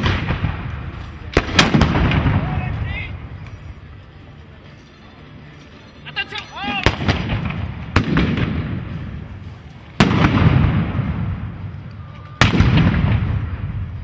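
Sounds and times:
black-powder gunshots with echo: 0.0s - 2.7s, 6.8s - 9.2s, 10.0s - 11.6s, 12.4s - 14.0s.

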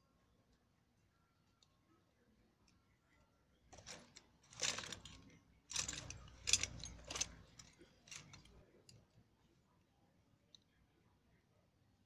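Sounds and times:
metal tools clinking on wooden table: 3.8s - 8.6s.

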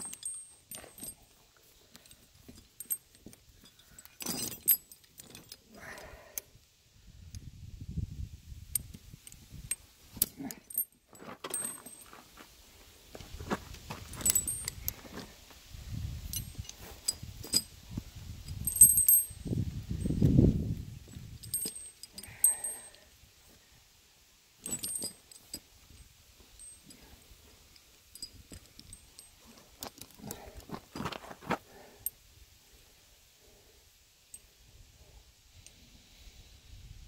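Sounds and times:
metal chains clinking: 0.0s - 5.8s, 9.7s - 12.2s, 14.1s - 15.0s, 16.2s - 17.8s, 18.4s - 20.2s, 21.1s - 23.0s, 24.6s - 31.2s.

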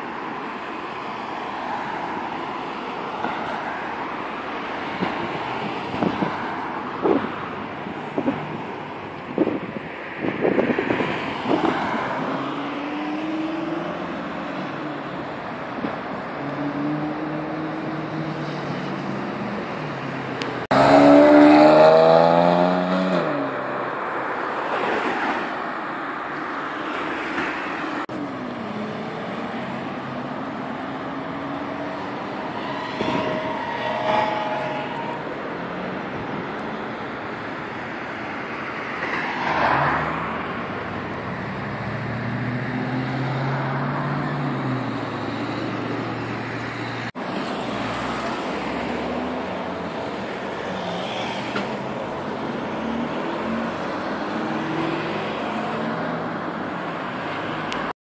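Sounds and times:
traffic: 0.0s - 58.0s
car engines revving past: 0.9s - 25.5s, 26.5s - 58.0s.

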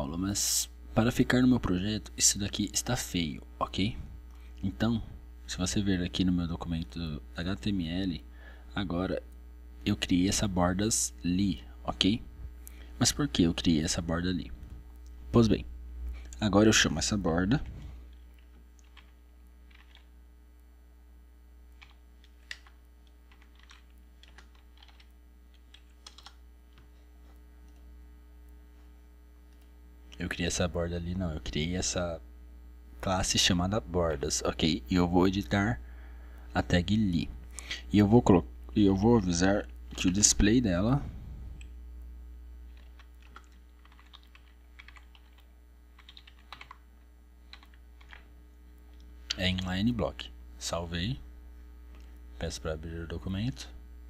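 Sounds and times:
low electrical hum: 0.0s - 54.0s
keyboard keys clicking: 18.8s - 20.1s, 21.8s - 26.8s, 42.8s - 46.8s.

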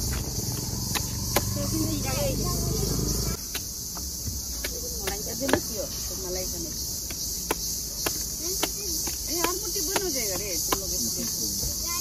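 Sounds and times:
insects shrilling: 0.0s - 12.0s.

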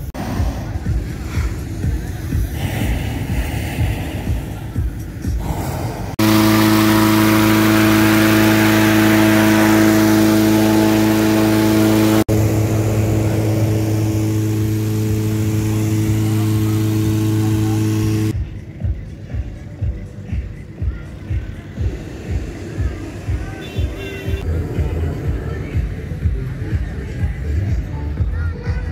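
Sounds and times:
mechanical drone with hiss: 0.0s - 18.4s.

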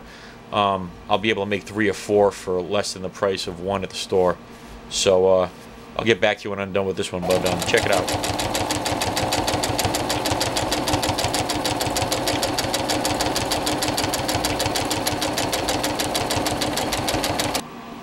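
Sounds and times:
sewing machine motor hum: 7.2s - 17.6s
sewing machine needle clatter: 7.2s - 17.6s.

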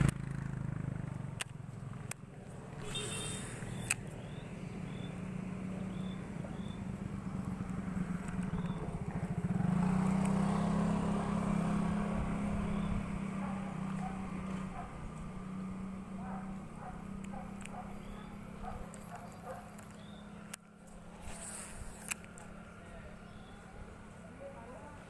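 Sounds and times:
motorcycle engine running: 0.0s - 25.0s
sharp click: 3.6s - 4.2s.

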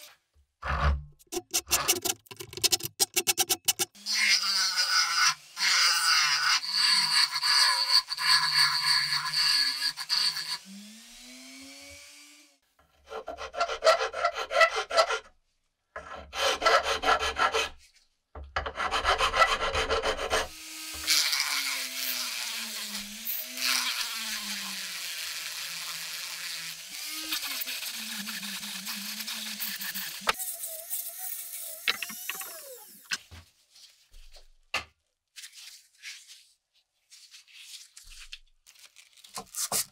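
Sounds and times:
rotary tool sanding wood: 18.8s - 33.1s.

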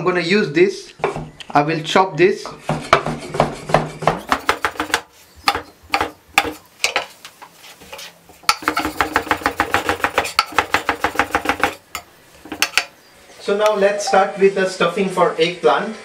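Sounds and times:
knife chopping on wooden board: 2.7s - 7.0s, 7.9s - 11.8s.

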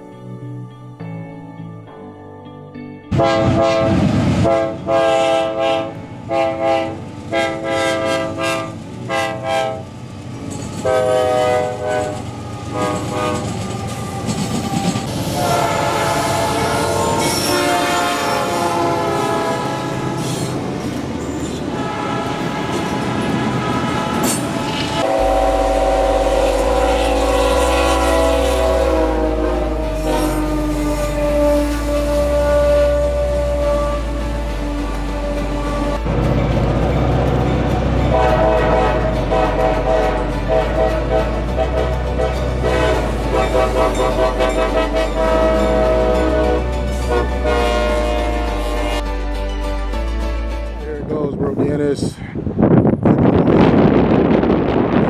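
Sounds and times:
locomotive air horn blasts: 3.1s - 9.9s, 10.8s - 13.8s, 15.1s - 20.6s, 21.7s - 36.1s, 38.1s - 49.1s
passing train rumble and clatter: 3.1s - 55.0s.

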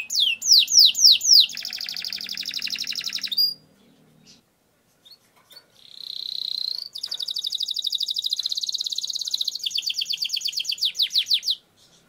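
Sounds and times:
canary singing trill: 0.0s - 12.0s.

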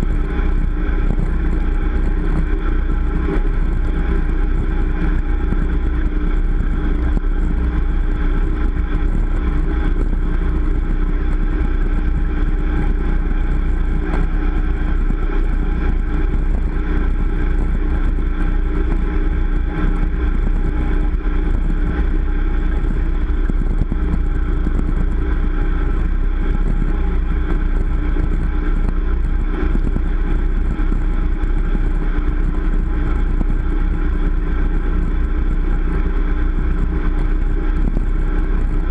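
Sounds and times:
motorboat engine running: 0.0s - 38.9s.

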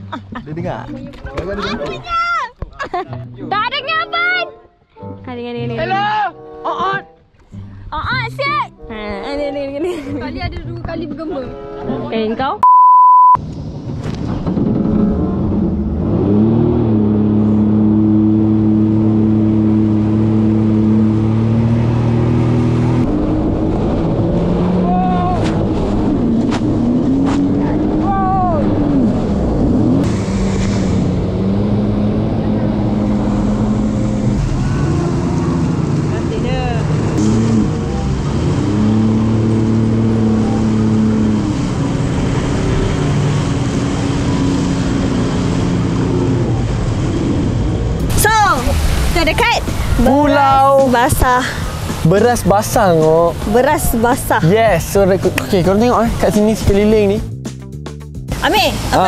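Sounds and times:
jet ski engine running: 13.5s - 59.0s
rush of spray and water: 30.0s - 37.2s, 38.3s - 57.1s, 58.3s - 59.0s.

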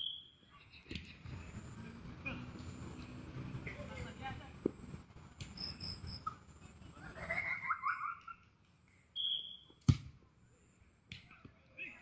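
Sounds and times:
high whistle-like tone: 0.0s - 0.4s, 9.2s - 9.8s
football kick thud: 9.8s - 10.2s.

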